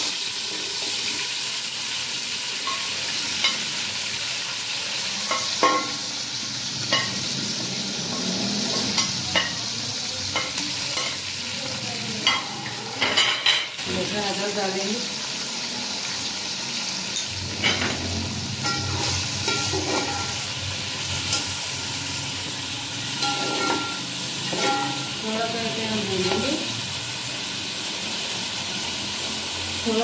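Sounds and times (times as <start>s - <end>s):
food sizzling in hot oil: 0.0s - 30.0s
metal spoon scraping a pot: 18.6s - 20.4s.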